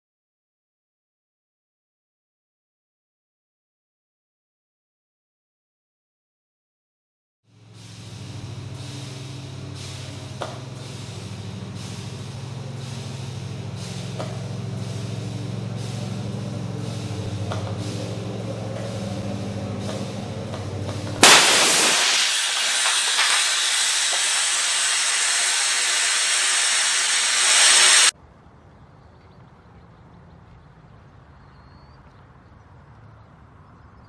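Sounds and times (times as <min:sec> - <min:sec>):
low hum: 0:07.5 - 0:28.1
loud bang of pipe bursting: 0:21.2 - 0:28.1
loud hiss of escaping pressure: 0:21.2 - 0:28.1.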